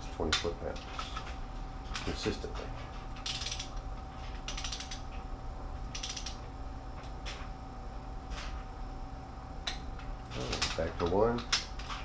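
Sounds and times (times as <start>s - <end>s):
torque wrench ratcheting: 3.2s - 3.7s, 4.5s - 5.0s, 5.9s - 6.4s.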